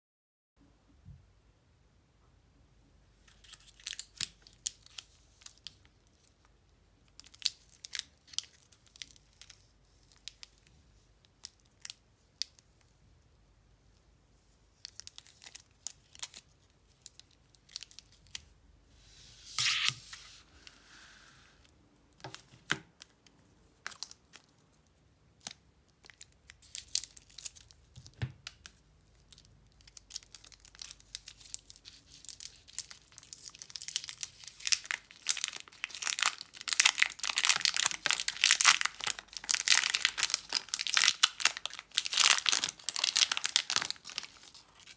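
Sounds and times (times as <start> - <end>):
plastic wrappers crackling: 29.4 - 44.9
wrapper ripping: 29.4 - 44.9.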